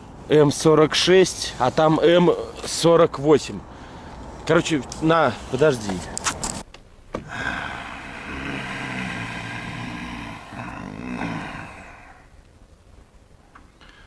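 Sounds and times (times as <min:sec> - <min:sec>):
man groaning: 0:07.2 - 0:12.3.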